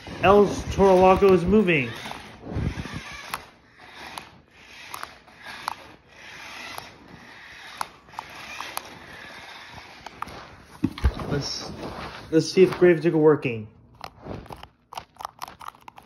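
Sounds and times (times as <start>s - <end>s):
toy truck motor whirring: 0.0s - 10.7s, 14.0s - 16.0s
sharp clicks: 2.8s - 7.0s.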